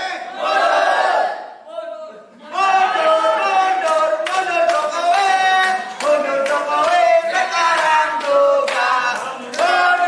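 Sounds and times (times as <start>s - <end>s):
group singing together: 0.0s - 1.6s, 2.4s - 10.0s
hand clapping on the beat: 3.7s - 10.0s.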